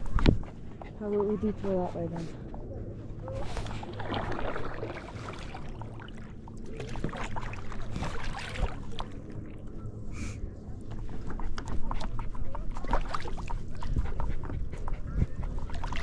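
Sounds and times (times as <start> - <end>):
water lapping against board: 0.0 - 2.6, 3.2 - 9.6, 10.8 - 16.0
paddle splashing in water: 3.4 - 9.3, 11.0 - 16.0.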